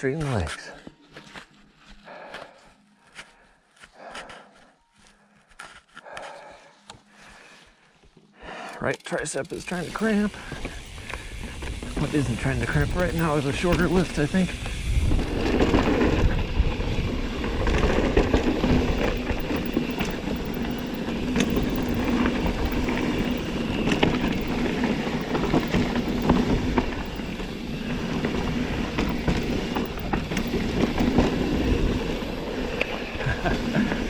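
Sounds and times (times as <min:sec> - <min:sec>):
bike rattling and clicking: 0:09.0 - 0:32.9
bike tyres rolling on dirt: 0:10.0 - 0:34.0.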